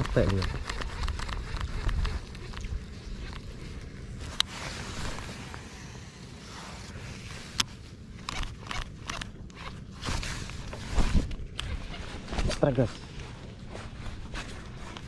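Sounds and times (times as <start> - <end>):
microphone handling noise: 8.3 - 15.0.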